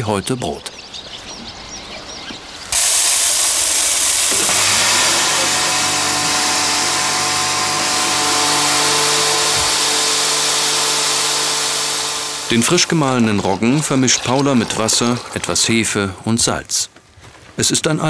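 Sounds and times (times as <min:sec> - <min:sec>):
electric grain mill grinding: 0:02.7 - 0:15.9.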